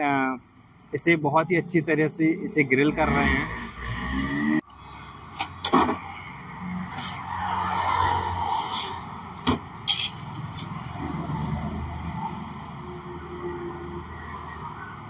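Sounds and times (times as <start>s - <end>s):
passing road traffic hiss: 6.5s - 15.0s.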